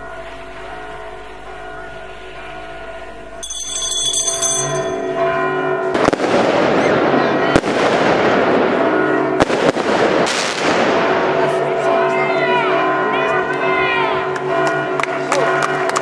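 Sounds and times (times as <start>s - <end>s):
church bells ringing: 0.0s - 16.0s
firecrackers crackling and banging: 5.9s - 11.7s.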